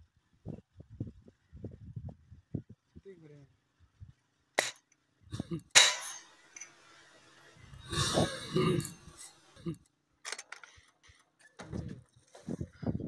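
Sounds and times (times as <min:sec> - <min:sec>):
air gun shot: 0:04.6 - 0:04.8, 0:05.7 - 0:06.3
person's wordless vocal sound: 0:05.3 - 0:05.7, 0:07.7 - 0:09.8.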